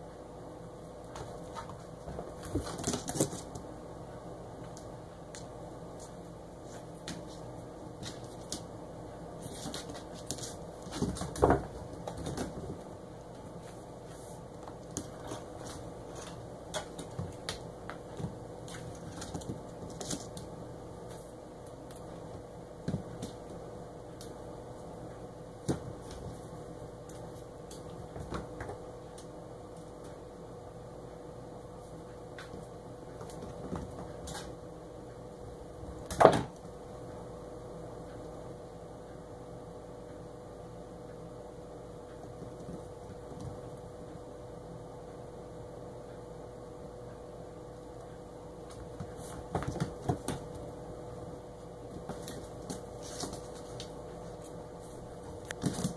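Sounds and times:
steady background hum: 0.0s - 55.9s
paws tapping and scuffling: 1.1s - 3.8s, 4.6s - 8.7s, 9.4s - 24.3s, 25.6s - 30.2s, 31.9s - 34.6s, 42.2s - 44.0s, 48.6s - 50.7s, 51.8s - 55.9s.

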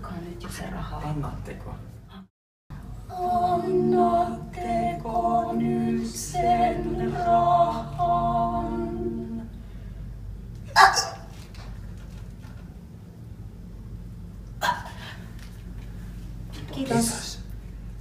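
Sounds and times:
group singing a cappella: 2.9s - 9.7s.

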